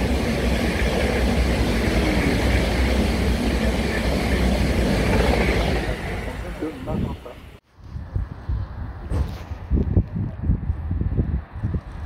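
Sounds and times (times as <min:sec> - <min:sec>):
train rushing through station: 0:00.0 - 0:07.6.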